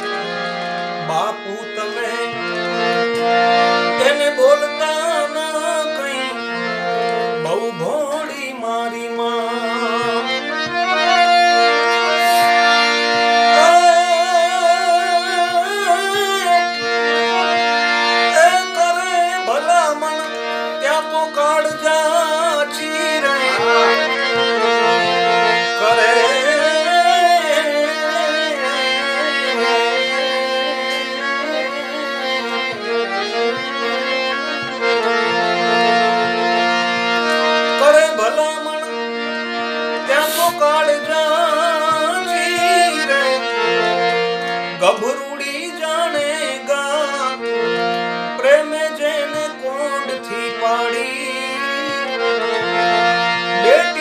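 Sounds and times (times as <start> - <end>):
harmonium playing chords: 0.0 - 54.0
man singing ornamented lines: 1.0 - 2.8, 4.0 - 6.4, 7.4 - 10.6, 13.5 - 16.7, 18.3 - 32.7, 37.8 - 39.0, 40.0 - 43.5, 44.7 - 47.5, 48.4 - 52.4, 53.6 - 54.0.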